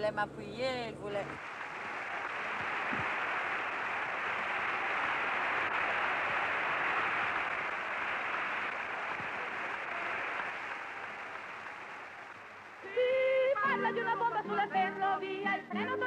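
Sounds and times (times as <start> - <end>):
audience applause: 1.4 - 13.6.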